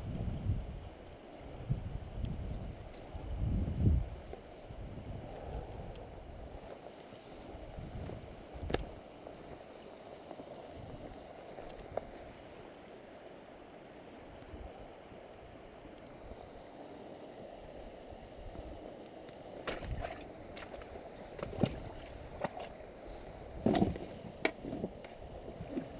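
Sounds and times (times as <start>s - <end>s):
river rushing: 6.2s - 23.6s.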